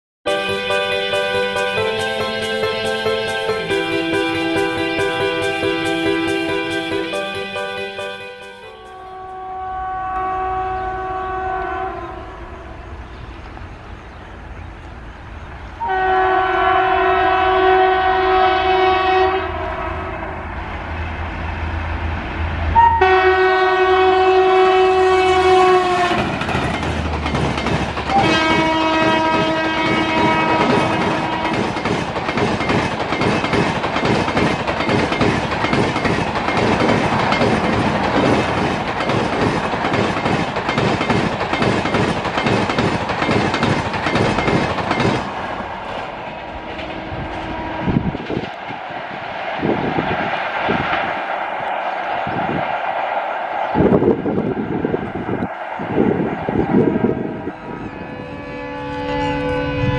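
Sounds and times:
train coaches rumbling and clacking: 0.3 - 11.3, 12.2 - 59.9
locomotive air horn blasts: 0.3 - 12.8, 15.8 - 20.5, 22.8 - 26.4, 28.1 - 31.7, 46.8 - 48.2, 56.9 - 59.9.

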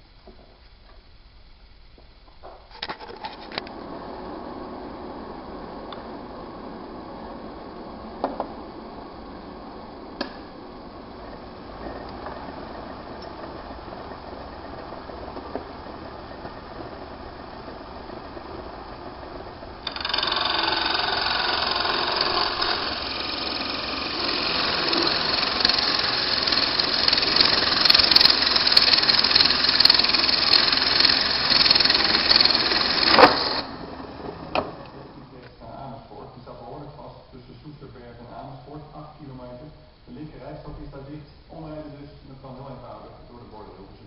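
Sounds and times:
small lathe humming: 3.2 - 35.6
hand tool scraping hiss: 19.8 - 33.8.

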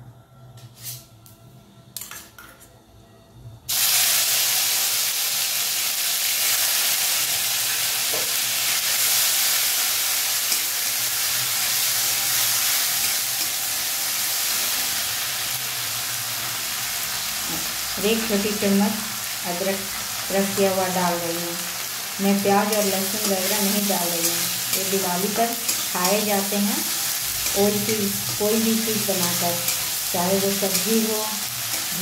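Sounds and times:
tomato sizzling in hot oil: 3.7 - 32.0.

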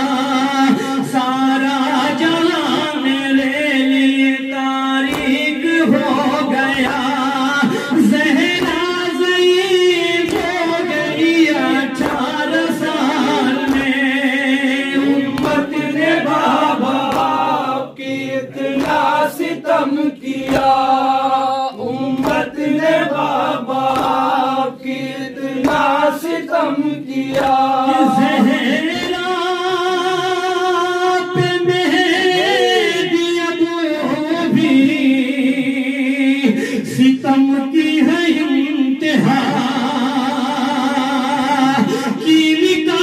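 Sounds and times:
man chanting into a microphone: 0.0 - 43.0
men chanting in chorus: 0.0 - 43.0
hands beating on chests: 10.2 - 11.3, 11.9 - 12.9, 13.5 - 14.0, 15.3 - 17.6, 23.8 - 24.4.

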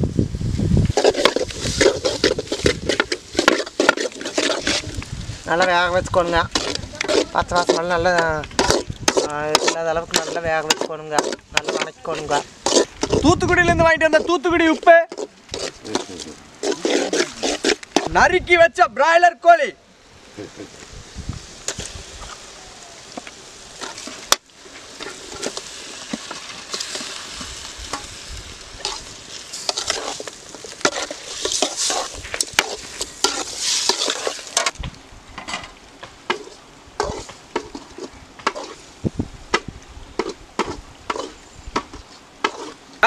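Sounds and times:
chicken sizzling in oil: 0.9 - 13.2, 21.4 - 34.8
stirring clicks and scrapes: 0.9 - 13.4, 14.0 - 18.2, 23.2 - 28.1, 28.8 - 34.8, 35.4 - 38.8, 39.6 - 42.8.

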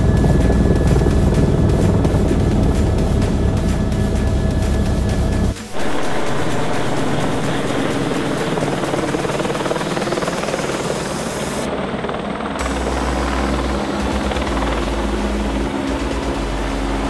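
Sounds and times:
strong low rumble: 0.0 - 10.3, 11.6 - 17.0
helicopter flying overhead: 0.0 - 17.0.

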